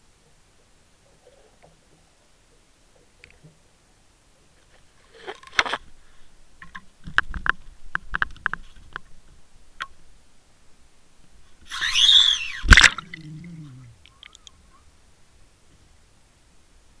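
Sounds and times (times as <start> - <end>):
hard splash into water: 11.8 - 13.6.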